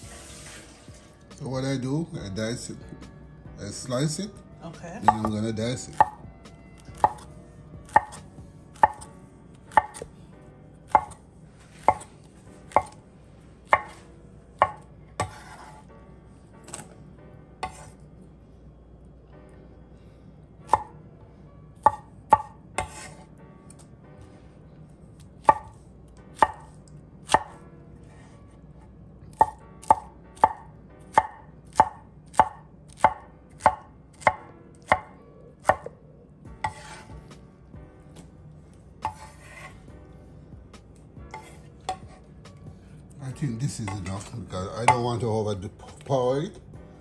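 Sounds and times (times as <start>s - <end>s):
knife chopping on wooden board: 5.0s - 6.2s, 6.8s - 9.1s, 9.7s - 10.1s, 10.9s - 11.2s, 11.8s - 12.1s, 12.7s - 13.0s, 13.7s - 15.9s, 17.6s - 18.0s, 20.7s - 20.9s, 21.8s - 23.2s, 25.4s - 25.8s, 26.4s - 27.6s, 29.3s - 36.0s, 36.6s - 37.3s, 39.0s - 39.8s, 41.3s - 42.2s.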